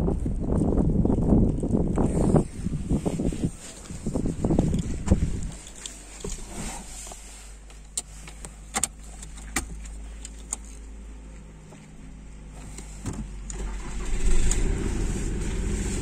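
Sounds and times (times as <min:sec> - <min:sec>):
sharp clicks in car: 0:07.6 - 0:11.5.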